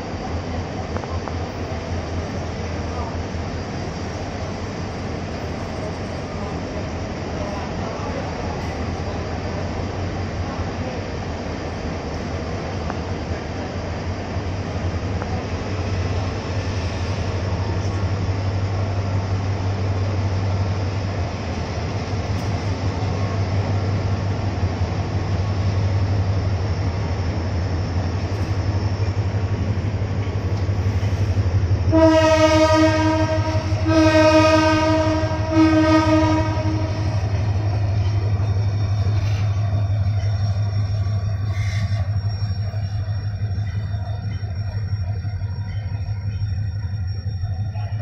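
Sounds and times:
diesel locomotive engine drone: 0:00.0 - 0:48.0
locomotive horn blasts: 0:31.9 - 0:37.3.

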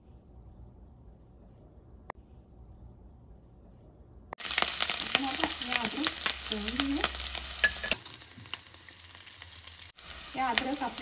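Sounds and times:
ginger sizzling in hot oil: 0:04.4 - 0:11.0.

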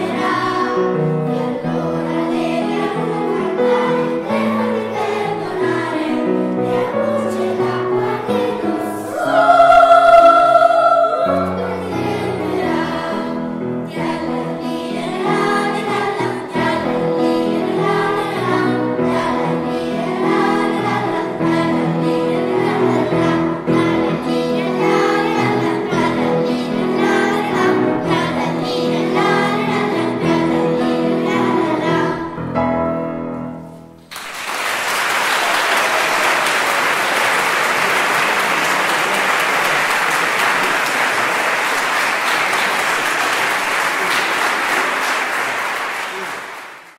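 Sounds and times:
children's choir singing: 0:00.0 - 0:32.6, 0:34.8 - 0:46.9
grand piano: 0:00.0 - 0:46.9
audience applause: 0:34.1 - 0:46.9.

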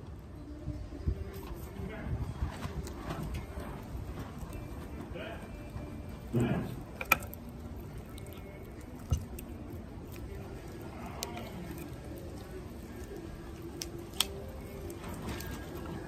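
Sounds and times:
outdoor background noise: 0:00.0 - 0:16.0
handling raw chicken wing: 0:06.7 - 0:16.0.

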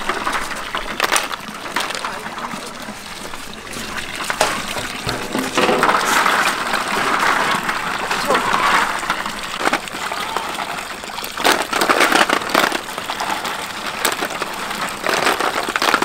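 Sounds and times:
water pouring from a tap: 0:00.0 - 0:16.0
snail shells clicking together: 0:00.2 - 0:02.2, 0:09.2 - 0:16.0.

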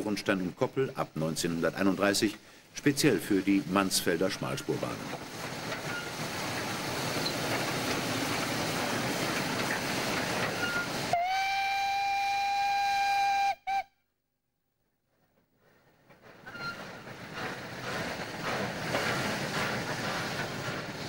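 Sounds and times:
steam locomotive rushing noise: 0:00.0 - 0:13.5, 0:15.6 - 0:21.0
steam whistle blasts: 0:10.7 - 0:13.9.

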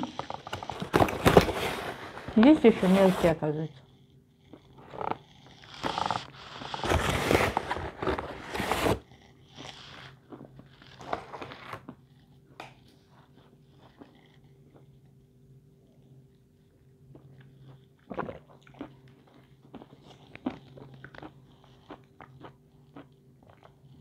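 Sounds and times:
paper bag rustling: 0:05.9 - 0:09.0
chewing chalk: 0:17.1 - 0:24.0.

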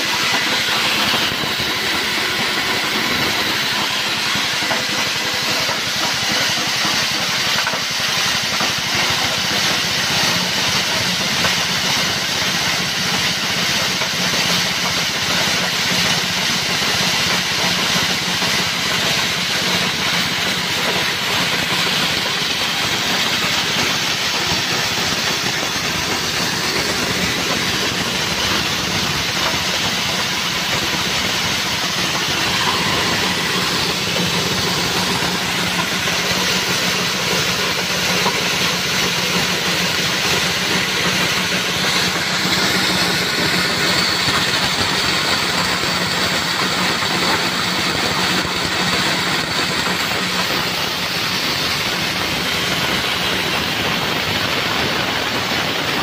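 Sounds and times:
chopper machine rushing hiss: 0:00.0 - 0:56.0
petrol engine hum: 0:31.5 - 0:38.0.

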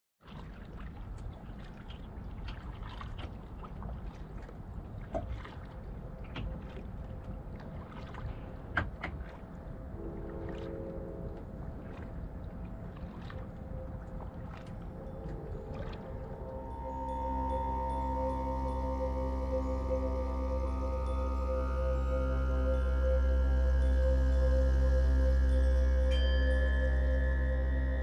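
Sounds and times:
paddle splashing water: 0:00.2 - 0:16.5
low steady rumble: 0:00.6 - 0:28.0.

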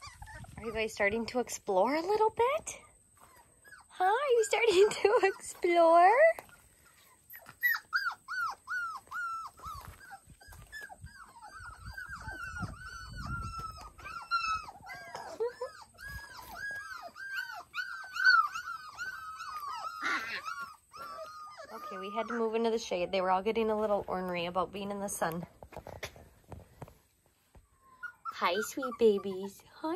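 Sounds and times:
puppies whining: 0:00.0 - 0:25.1, 0:27.5 - 0:29.9.

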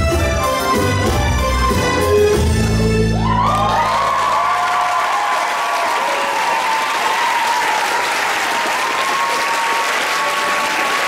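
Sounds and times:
audience applauding: 0:03.2 - 0:11.0
audience cheering: 0:03.2 - 0:11.0.

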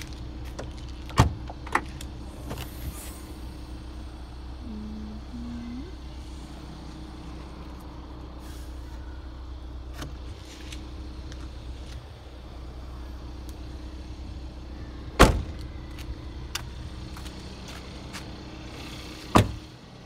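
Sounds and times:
steady low hum: 0:00.0 - 0:20.0
car hatch shutting thud: 0:15.2 - 0:15.6, 0:19.3 - 0:19.7.

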